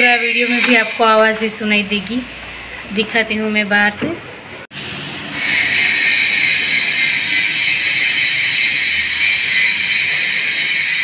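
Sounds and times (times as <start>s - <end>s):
power tool grinding steel: 0.0s - 1.2s, 5.0s - 11.0s.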